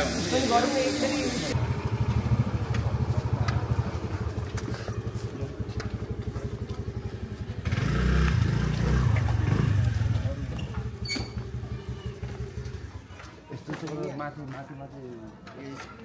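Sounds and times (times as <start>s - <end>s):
motorcycle engine running: 1.5s - 13.2s.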